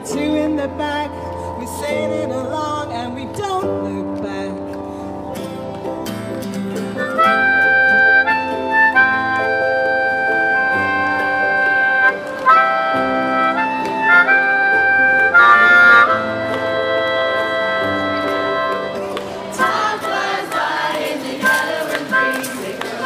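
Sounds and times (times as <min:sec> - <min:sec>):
strummed acoustic guitars: 0:00.0 - 0:23.0
harmonica melody: 0:00.1 - 0:23.0.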